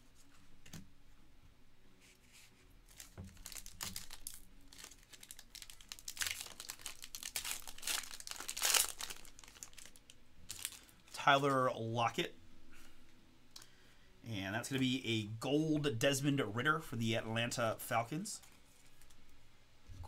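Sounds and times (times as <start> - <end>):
foil wrapper crinkling and tearing: 2.9 - 11.1.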